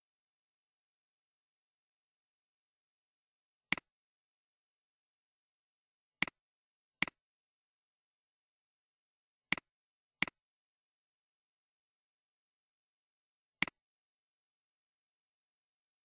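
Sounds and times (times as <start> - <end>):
computer mouse clicks: 3.7 - 3.9.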